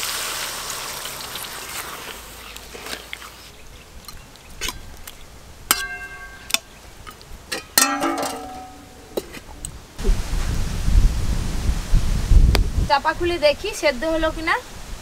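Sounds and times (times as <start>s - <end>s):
simmering gravy hiss: 0.0s - 5.6s, 9.3s - 15.0s
spatula clinking against pan: 5.7s - 9.1s.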